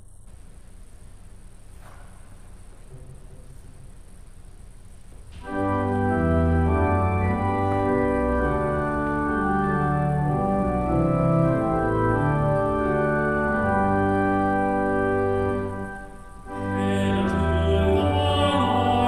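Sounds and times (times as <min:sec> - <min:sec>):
organ playing chords: 0:05.3 - 0:19.0.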